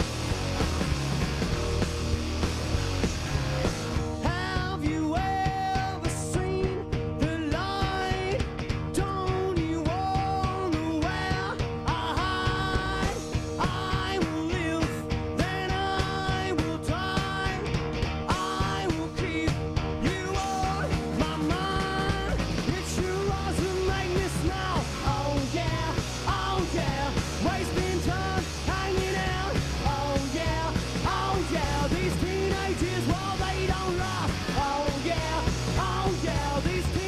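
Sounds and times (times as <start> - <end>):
distorted electric guitar: 0.0 - 37.0
drums: 0.0 - 37.0
electric bass: 0.0 - 37.0
people singing: 10.2 - 14.9, 18.3 - 37.0.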